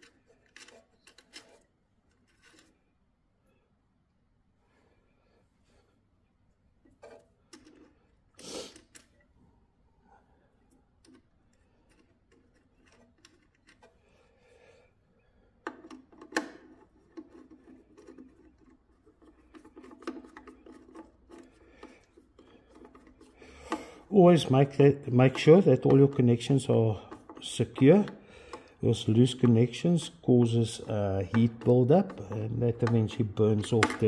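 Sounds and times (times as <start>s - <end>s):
metal clicks: 15.6s - 34.0s.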